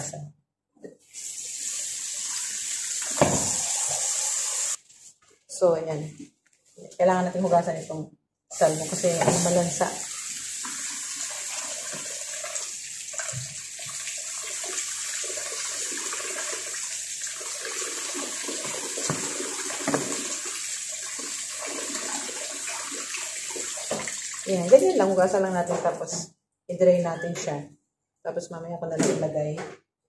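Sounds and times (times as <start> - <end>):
faucet water splashing: 1.0 - 4.8, 8.6 - 25.2.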